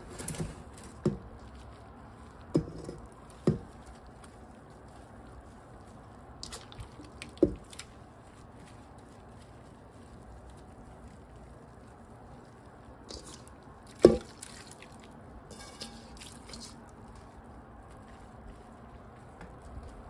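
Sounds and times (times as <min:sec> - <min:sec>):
small crackles: 0:00.0 - 0:20.0
wet leaves squishing: 0:00.0 - 0:20.0
scraping metal bowl: 0:15.5 - 0:16.2.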